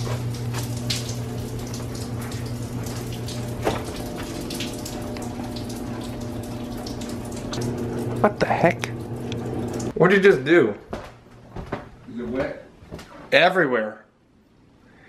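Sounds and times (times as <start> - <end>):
water dripping and splashing: 0.0 - 10.0.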